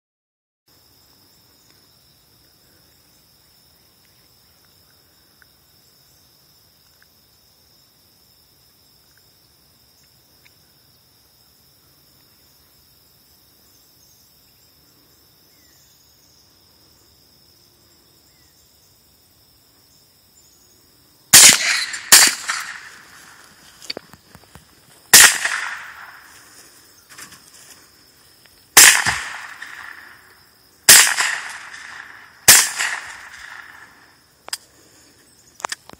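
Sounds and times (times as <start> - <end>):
rifle shots: 21.3 - 23.4, 25.1 - 26.3, 28.8 - 30.2, 30.9 - 34.0
faint crack: 21.4 - 27.8, 35.6 - 35.9.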